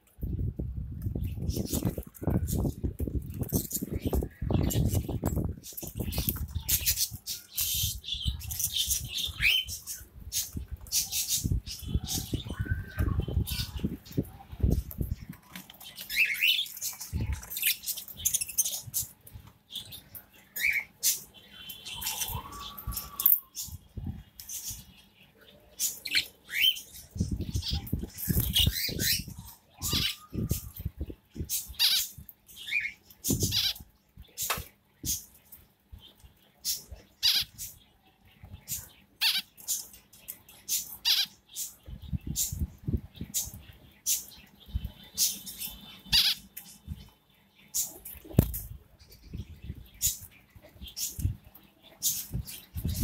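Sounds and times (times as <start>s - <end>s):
birds chirping: 0.0s - 53.0s.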